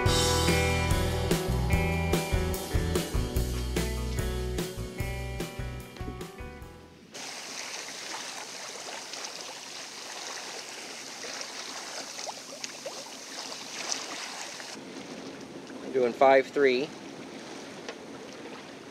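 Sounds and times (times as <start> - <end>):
background music: 0.0 - 6.9
water rushing along boat hull: 7.1 - 18.9.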